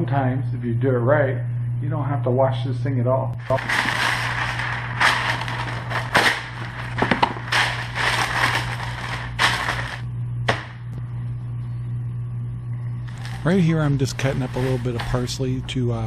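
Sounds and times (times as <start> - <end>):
parchment paper crinkling: 3.4 - 10.0, 13.1 - 15.6.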